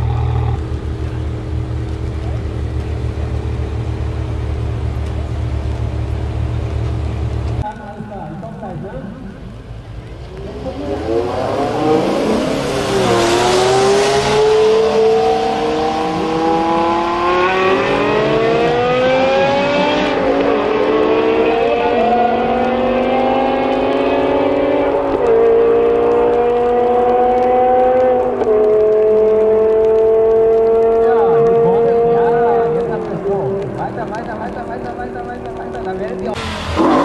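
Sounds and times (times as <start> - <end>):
cars accelerating hard: 10.1 - 37.0.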